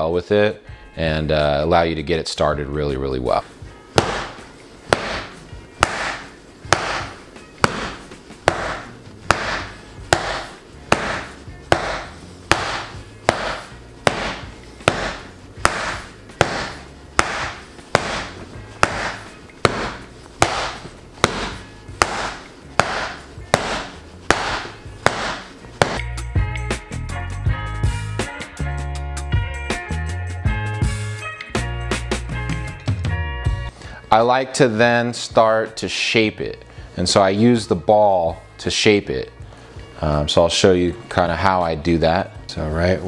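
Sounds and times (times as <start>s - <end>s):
mallet knocking leather mitt: 3.9s - 26.1s.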